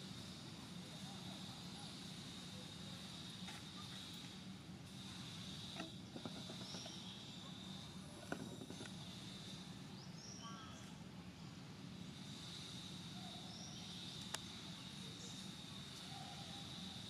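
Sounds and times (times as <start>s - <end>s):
high insect drone: 0.0s - 17.0s
faint clicks: 14.2s - 14.5s.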